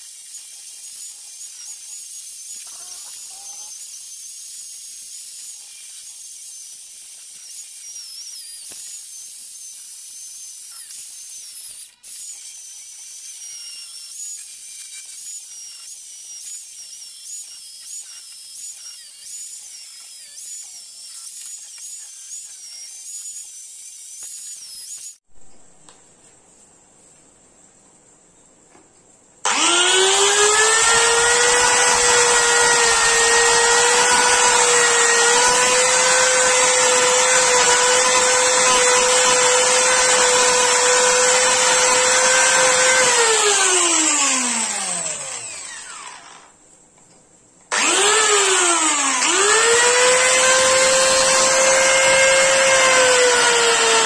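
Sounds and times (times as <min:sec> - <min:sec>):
electric drill motor whine: 0:29.5 - 0:46.6, 0:47.7 - 0:54.0.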